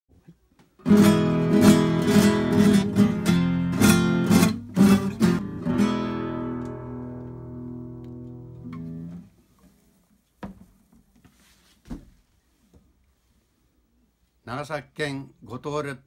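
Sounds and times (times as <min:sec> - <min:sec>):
classical guitar strumming chords: 0:00.8 - 0:09.3.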